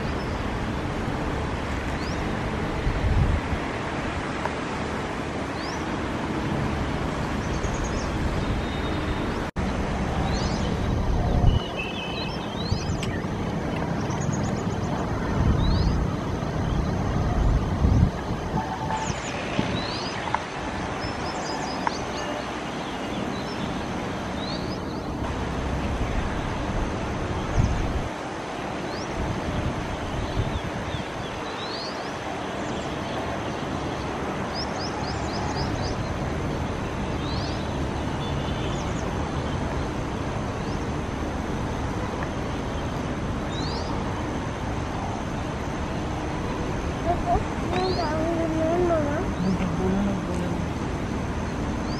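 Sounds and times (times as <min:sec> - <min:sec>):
distant traffic: 0:00.0 - 0:51.9
bird chirps: 0:10.2 - 0:17.0.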